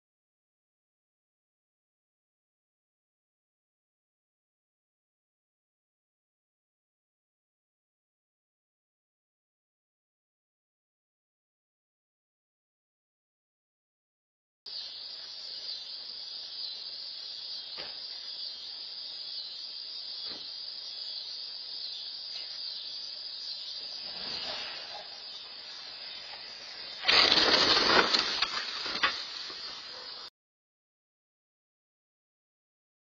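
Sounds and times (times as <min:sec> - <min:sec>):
steady high hiss: 0:14.7 - 0:30.3
vehicle driving into shrubs: 0:23.8 - 0:29.9.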